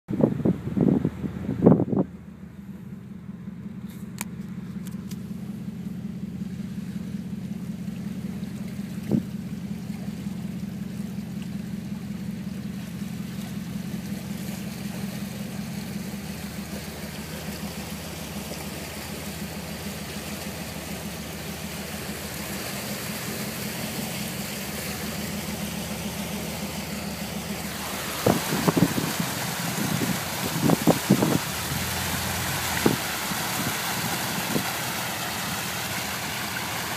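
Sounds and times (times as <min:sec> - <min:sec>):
vehicle engine idling: 0:00.0 - 0:36.9.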